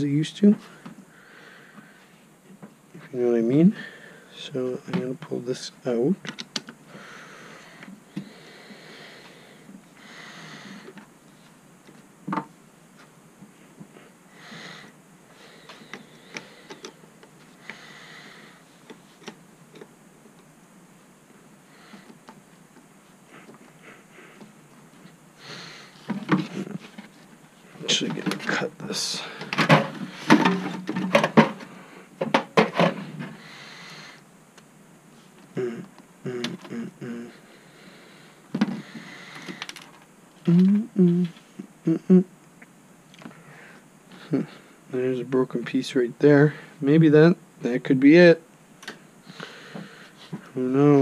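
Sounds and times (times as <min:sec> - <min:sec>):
soft breaths through nose: 0:00.6 - 0:02.3, 0:06.9 - 0:11.5, 0:33.3 - 0:34.3, 0:49.2 - 0:50.5.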